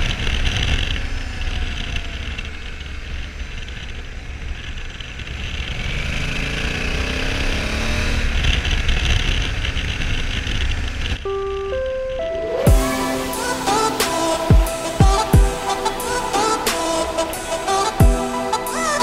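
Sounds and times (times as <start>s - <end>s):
motorcycle engine accelerating: 0.0s - 11.2s.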